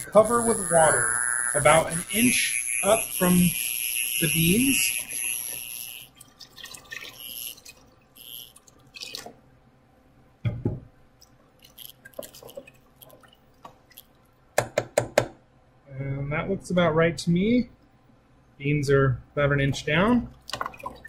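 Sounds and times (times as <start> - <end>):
water pouring into pot: 2.2 - 9.3.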